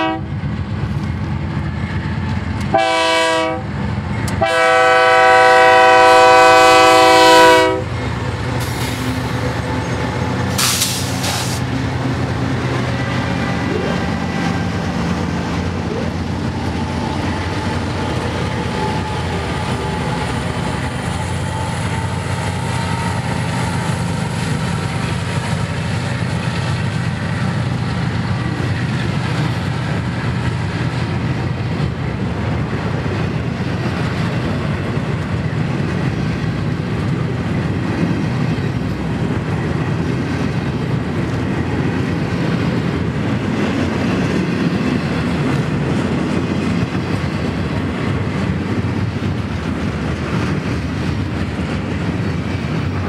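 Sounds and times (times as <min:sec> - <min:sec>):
freight train wheels rumbling on rails: 0:00.0 - 0:53.0.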